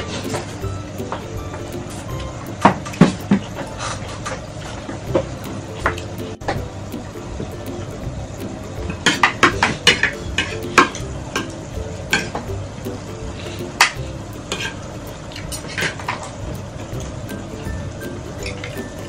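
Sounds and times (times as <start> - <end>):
soft background music: 0.0 - 19.0
spoons clinking against plates: 8.9 - 12.5, 13.6 - 16.3.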